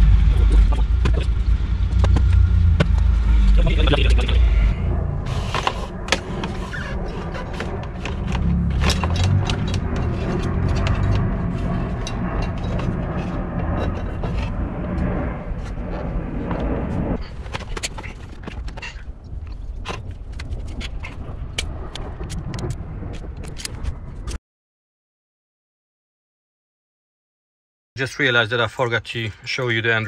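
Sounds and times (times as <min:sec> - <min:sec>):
low rumble: 0:00.0 - 0:24.4
wires and plastic trim scraping: 0:05.3 - 0:14.6.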